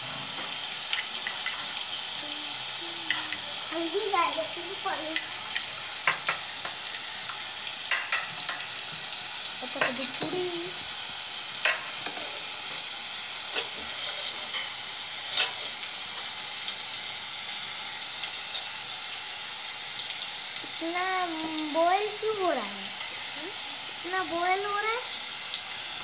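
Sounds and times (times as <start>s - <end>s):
onion sizzling in oil: 0.0s - 26.0s.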